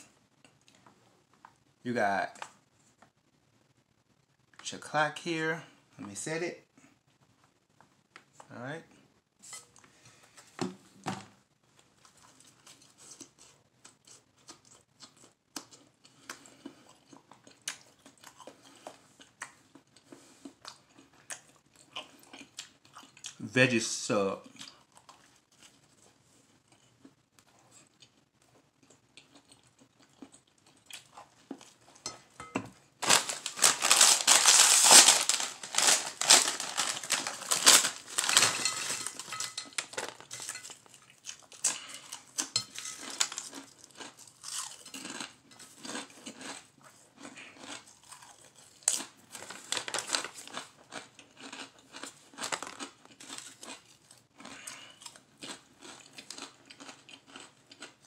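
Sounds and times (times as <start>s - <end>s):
crunching and chewing: 11.7s - 23.4s, 24.4s - 32.4s, 33.0s - 58.0s
chip bag crinkling: 33.0s - 46.6s, 47.6s - 53.8s.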